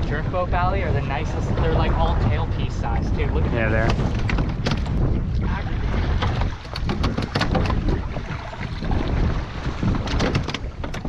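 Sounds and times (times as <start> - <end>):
water sloshing against boat hull: 0.0 - 11.0
wind buffeting microphone: 0.0 - 11.0
small clicks and knocks: 6.4 - 7.8, 10.0 - 11.0.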